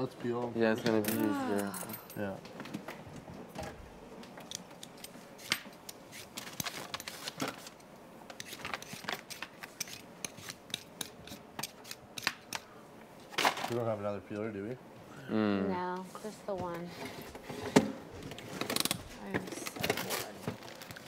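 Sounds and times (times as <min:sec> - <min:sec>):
peeler scraping potatoes: 0:08.4 - 0:12.3.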